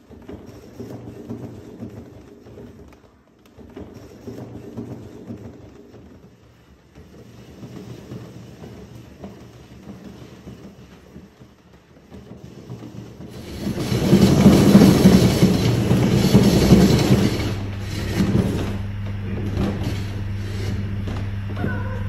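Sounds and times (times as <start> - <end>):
exercise wheel spinning: 0.0 - 22.0.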